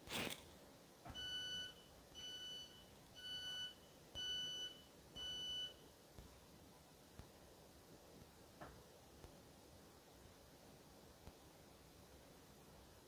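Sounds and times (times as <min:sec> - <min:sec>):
train door warning beeps: 0:01.1 - 0:05.8.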